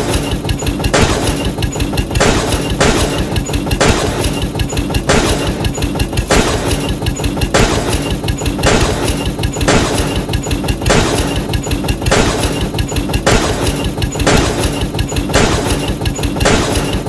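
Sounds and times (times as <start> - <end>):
tractor engine chugging: 0.0 - 17.0.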